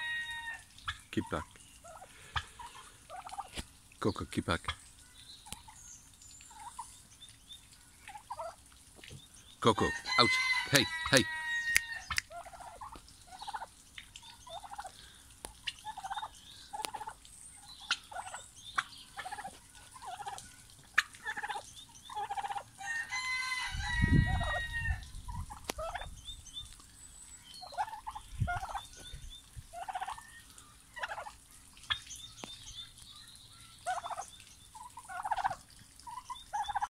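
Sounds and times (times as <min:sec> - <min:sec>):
turkey gobble: 0:00.0 - 0:03.6, 0:08.0 - 0:08.6, 0:09.8 - 0:17.2, 0:17.8 - 0:26.1, 0:27.6 - 0:28.9, 0:29.7 - 0:32.0, 0:33.8 - 0:36.9
turkeys calling: 0:00.0 - 0:33.0, 0:33.8 - 0:36.9.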